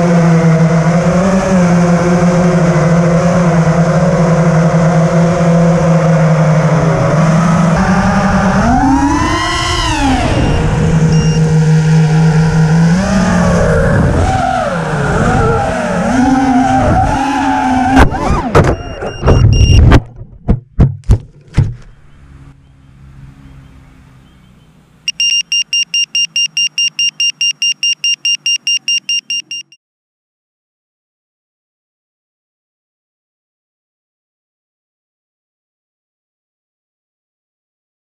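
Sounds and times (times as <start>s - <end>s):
drone motors whining: 2.2s - 19.8s
rapid alarm buzzer beeps: 10.4s - 11.5s, 18.7s - 19.8s, 25.1s - 29.8s.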